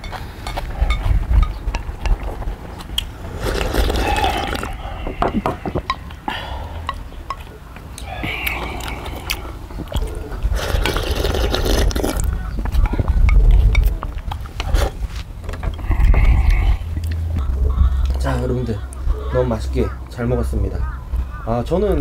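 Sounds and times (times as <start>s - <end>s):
slurping soup: 3.3s - 5.0s, 8.2s - 12.3s
chewing: 6.8s - 18.2s.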